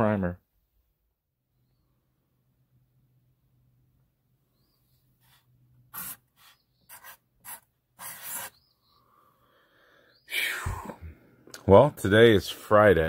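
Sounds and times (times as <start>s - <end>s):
marker scratching on wood: 5.2s - 8.6s
person breathing: 8.8s - 11.4s.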